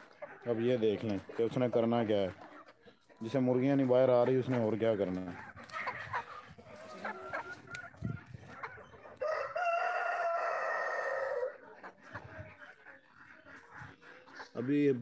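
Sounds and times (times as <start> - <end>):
hens clucking: 0.0 - 15.0
rooster crowing: 9.2 - 11.5.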